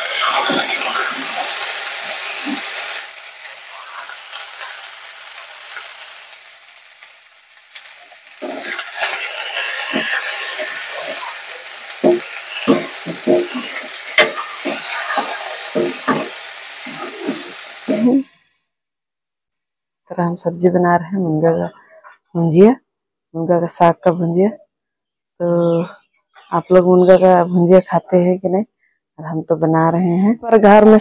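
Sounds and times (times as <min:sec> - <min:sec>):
steel spoon scraping a pan: 0:00.0 - 0:03.1, 0:07.8 - 0:18.2
vegetables sizzling in a pan: 0:00.0 - 0:18.6.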